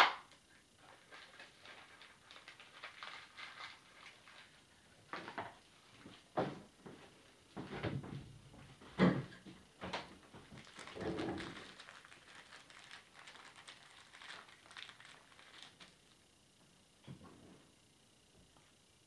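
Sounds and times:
small objects knocking and clattering: 9.9s - 15.9s.

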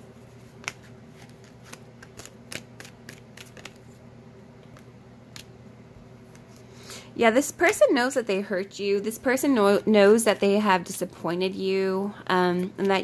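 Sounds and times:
cards being shuffled: 0.3s - 4.0s.

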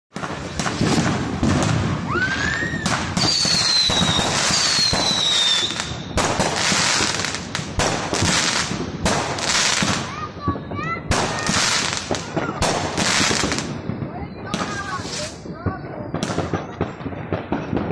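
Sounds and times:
fireworks bangs: 0.1s - 17.9s
fireworks crackling: 0.1s - 17.9s
falling firework whistle: 0.2s - 7.3s
rising firework whistle: 0.2s - 7.4s.

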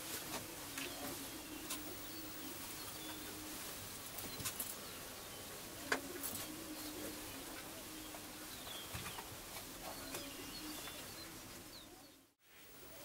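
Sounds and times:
prairie chickens booming: 0.1s - 13.0s
faint high chirps: 0.8s - 3.6s.

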